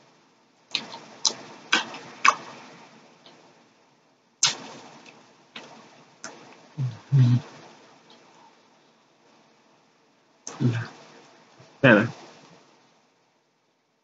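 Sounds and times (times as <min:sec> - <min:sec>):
wet mouth smacks and clicks: 0:04.4 - 0:06.4.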